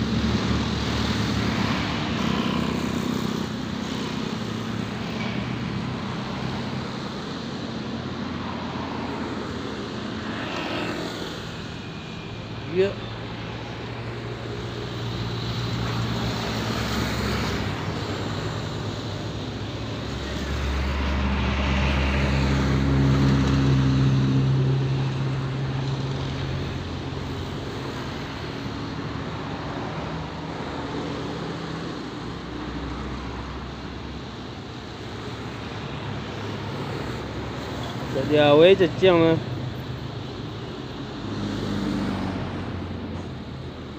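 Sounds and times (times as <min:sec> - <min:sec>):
passing engine drone: 0:08.3 - 0:25.4.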